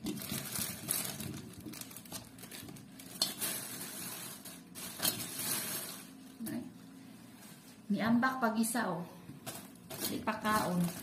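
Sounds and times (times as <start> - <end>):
plastic bags crinkling: 0.0 - 6.5, 9.4 - 11.0.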